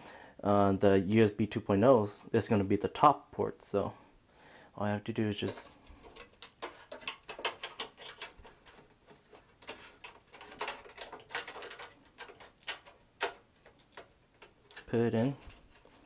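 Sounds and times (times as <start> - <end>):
sheet metal clicking against case: 5.5 - 15.6.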